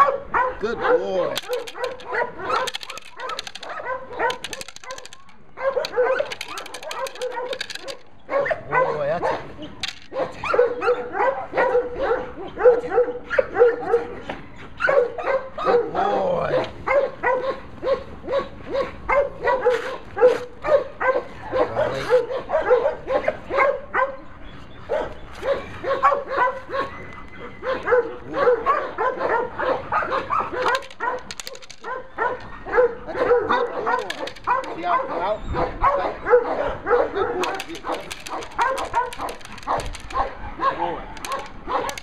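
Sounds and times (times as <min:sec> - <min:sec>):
puppy yipping and whining: 0:16.9 - 0:42.0.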